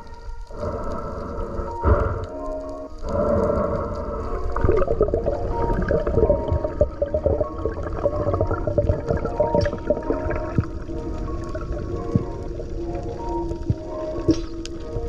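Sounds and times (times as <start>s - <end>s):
gurgling and crackling: 0.0s - 15.0s
muffled underwater rumble: 0.0s - 15.0s.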